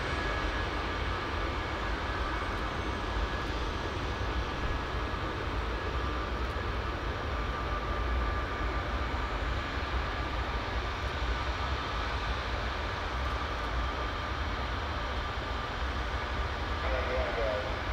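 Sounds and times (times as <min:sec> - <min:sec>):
jet engine rumble: 0:00.0 - 0:17.9
high jet whine: 0:07.3 - 0:17.9.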